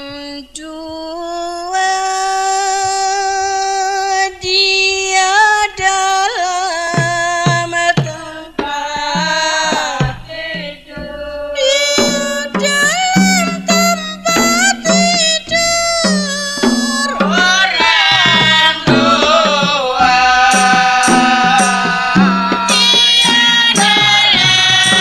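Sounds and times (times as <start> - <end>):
hand-drum strokes: 6.5 - 25.0.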